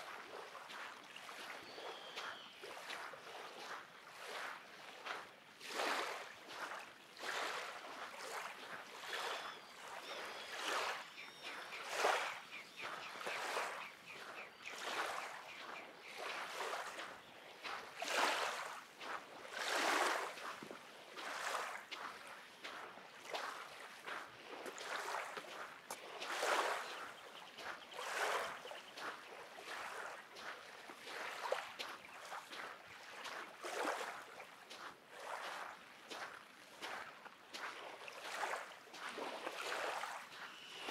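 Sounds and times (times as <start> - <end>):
waves lapping on shore: 0.0 - 40.9
faint bird chirps: 1.2 - 3.4, 9.0 - 17.6, 26.4 - 29.7, 40.3 - 40.9.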